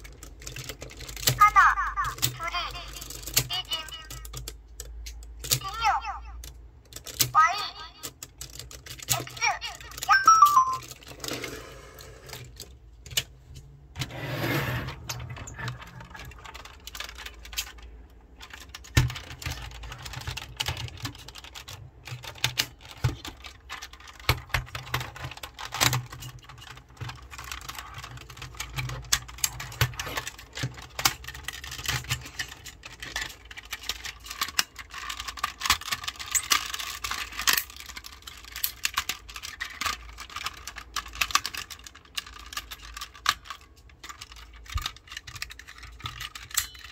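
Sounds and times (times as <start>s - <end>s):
plastic toy clicking and snapping: 0.0s - 5.8s, 6.4s - 7.4s, 8.0s - 11.2s, 15.0s - 46.9s.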